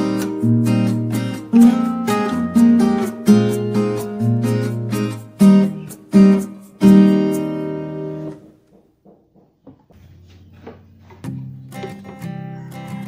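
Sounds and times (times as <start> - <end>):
plucked guitar notes: 0.0 - 8.5
strummed guitar chords: 0.0 - 8.6.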